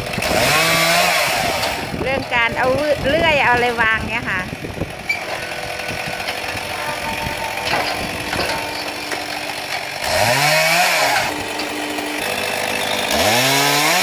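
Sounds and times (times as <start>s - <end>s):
chainsaw idling and revving: 0.0s - 14.0s
wooden knocks: 5.2s - 9.9s.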